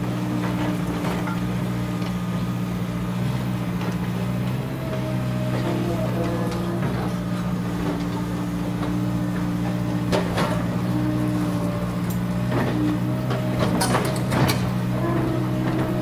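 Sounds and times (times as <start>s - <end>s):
excavator diesel engines: 0.0s - 16.0s
excavator bucket clanks: 12.1s - 16.0s.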